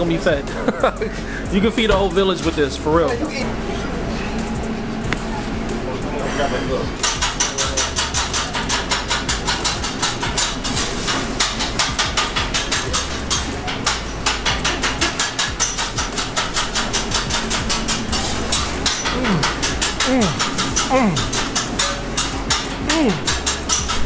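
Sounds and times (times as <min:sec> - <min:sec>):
fast percussive beat: 0:14.3 - 0:24.0
bass line: 0:17.1 - 0:23.7.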